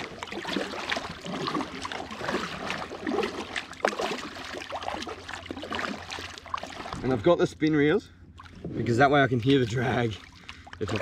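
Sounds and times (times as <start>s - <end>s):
water dripping off paddle: 0.0s - 7.0s, 10.2s - 11.0s
kayak paddle splashing: 0.0s - 7.2s, 8.3s - 11.0s.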